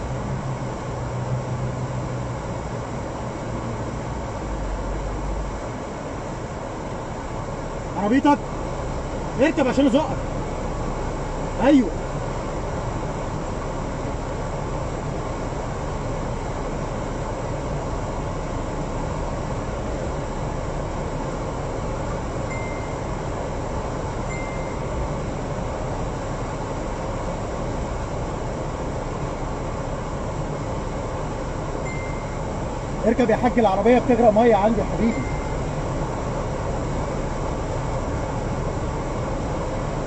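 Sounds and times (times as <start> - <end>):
short high beeps: 22.5 - 23.2, 24.3 - 25.0, 31.8 - 32.5, 35.0 - 35.7.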